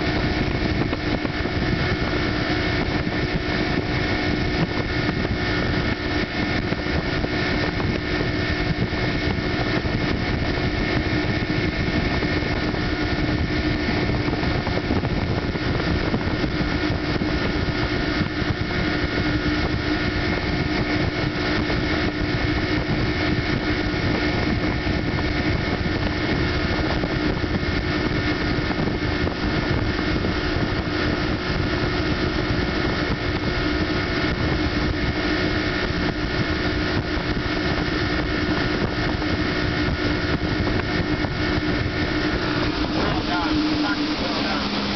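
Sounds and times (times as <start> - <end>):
boat engine humming: 0.0 - 44.9
water rushing from wake: 0.0 - 44.9.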